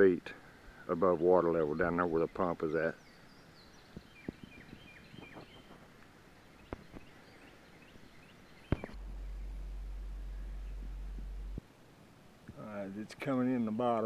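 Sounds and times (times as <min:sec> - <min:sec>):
small birds chirping: 0:00.4 - 0:11.6
steady low rumble: 0:08.6 - 0:11.7
sharp clicks: 0:08.7 - 0:11.6.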